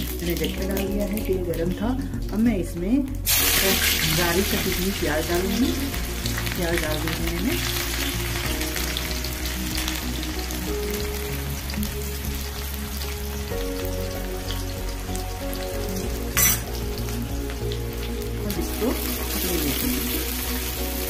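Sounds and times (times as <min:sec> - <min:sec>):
onion sizzling in oil: 0:03.2 - 0:21.0
sharp metal clink: 0:16.4 - 0:16.7.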